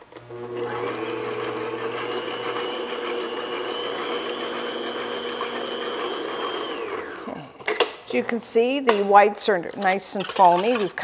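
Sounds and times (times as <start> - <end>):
stand mixer motor whining: 0.0 - 7.7
whisk beating in metal bowl: 0.7 - 7.4, 10.2 - 11.0.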